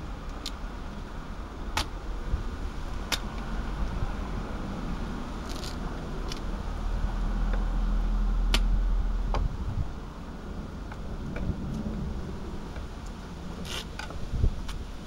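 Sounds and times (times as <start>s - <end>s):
low rumble: 0.0s - 13.6s.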